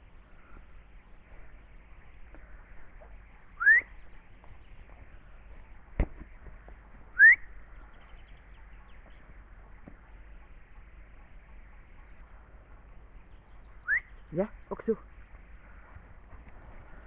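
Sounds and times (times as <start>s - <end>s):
person whistling rising whistle: 3.6s - 3.9s, 7.1s - 7.5s, 13.8s - 14.1s.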